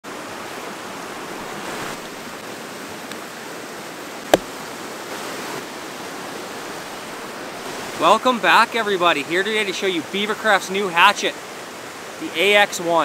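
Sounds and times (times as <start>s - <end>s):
creek rushing: 0.0s - 13.0s
sharp knock: 4.3s - 4.5s.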